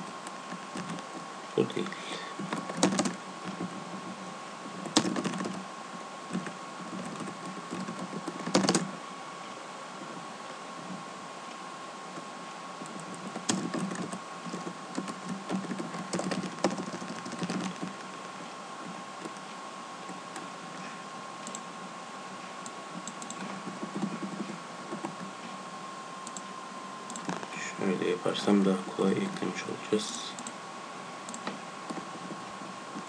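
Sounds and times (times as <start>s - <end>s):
typing on computer keyboard: 2.5s - 3.7s, 4.9s - 5.6s, 6.3s - 8.9s, 12.9s - 17.9s.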